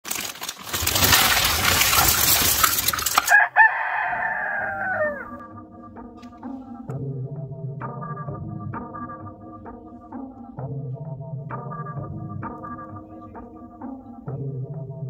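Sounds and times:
dense rustling and rattling: 0.0s - 3.4s
rooster crowing: 3.2s - 5.4s.

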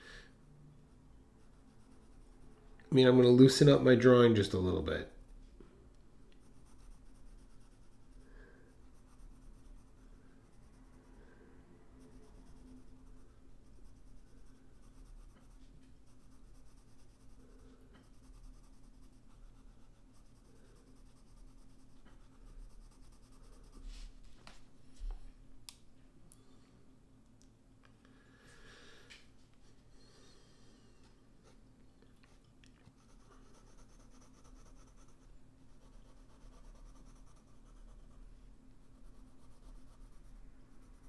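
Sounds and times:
pencil scratching on paper: 1.4s - 2.6s, 6.4s - 11.2s, 12.0s - 24.0s, 32.9s - 38.2s, 38.8s - 41.0s.

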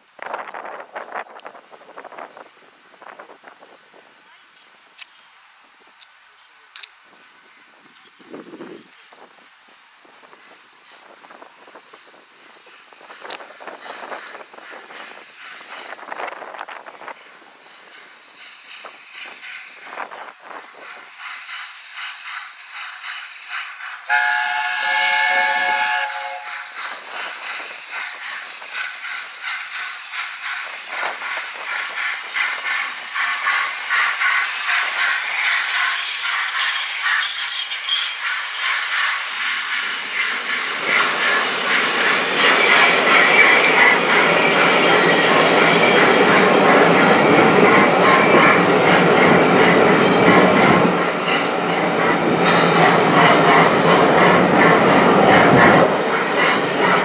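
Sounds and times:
train running rhythmic beat: 11.7s - 57.0s
steam locomotive chime whistle: 24.1s - 26.8s, 37.2s - 38.2s.

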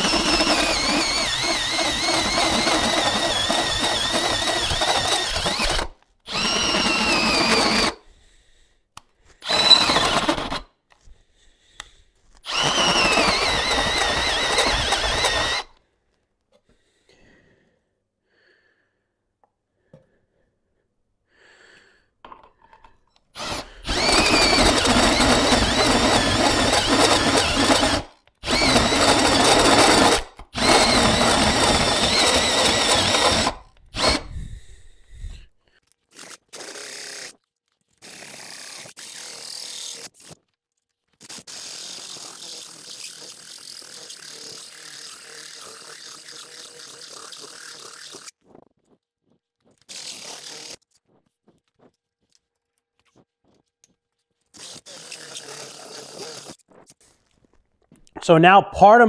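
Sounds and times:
hand drill cutting steel plate: 0.0s - 8.0s, 9.4s - 10.7s, 12.3s - 15.8s, 23.3s - 35.4s, 36.1s - 40.4s, 41.2s - 48.4s, 49.7s - 51.0s, 54.5s - 56.6s.

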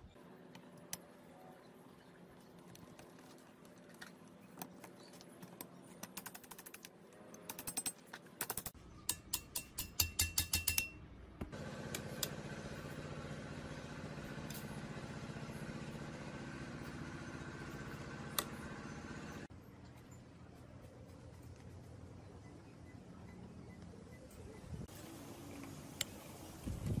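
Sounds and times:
metal clicks and taps: 5.4s - 11.0s.

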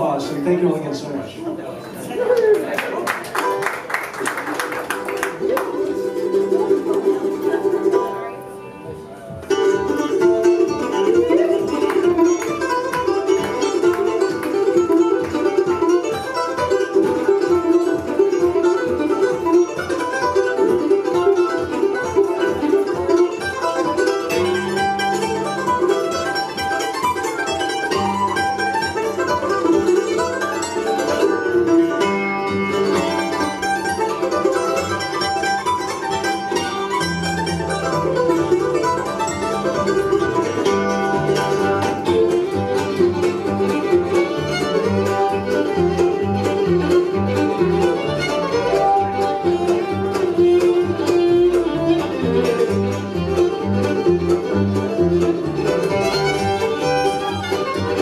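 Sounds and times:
bluegrass instrumental: 0.0s - 58.0s
rapid plucked mandolin notes: 0.0s - 58.0s
upright bass notes: 37.0s - 58.0s.

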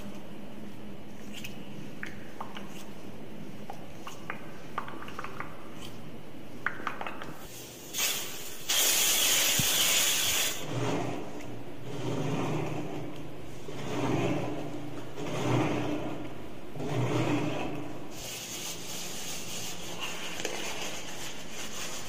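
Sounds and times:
aerosol spray hissing: 7.9s - 10.6s.

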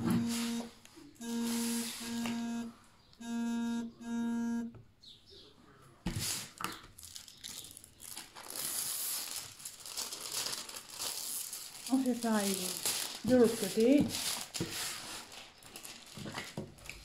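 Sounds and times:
low buzzing tone: 0.0s - 4.8s
plastic film crinkling: 6.3s - 17.0s.

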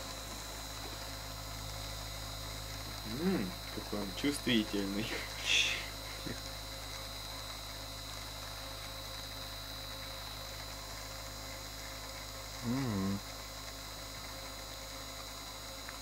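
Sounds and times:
motor electrical hum and whine: 0.0s - 16.0s
person humming: 3.1s - 3.6s, 12.6s - 13.2s.

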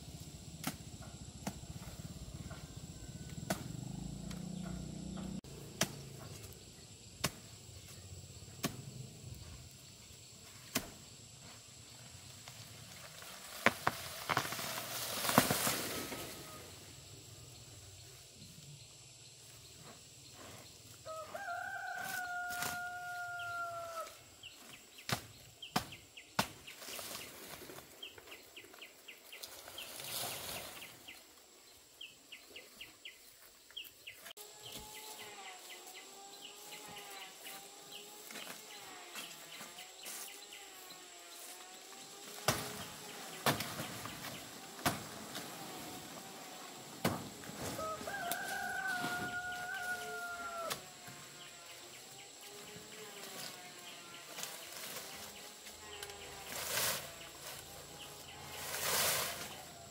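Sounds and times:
rooster crowing: 21.0s - 24.2s, 47.6s - 51.0s.

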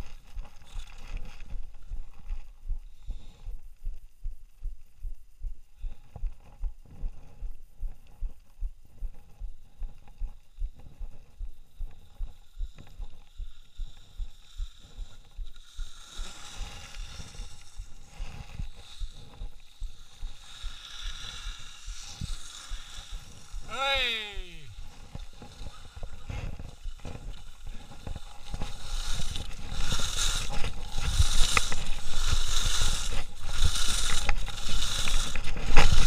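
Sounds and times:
ski edges scraping snow: 13.9s - 36.0s.

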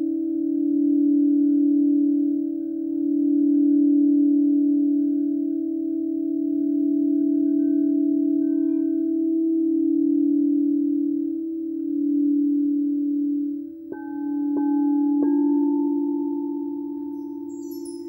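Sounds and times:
low singing bowl tone: 0.0s - 18.0s.

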